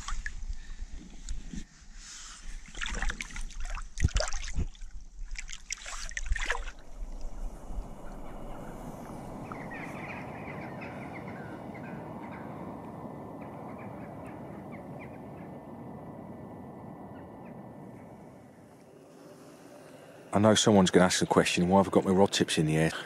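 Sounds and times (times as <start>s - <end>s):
flock of birds chattering: 7.9s - 15.8s.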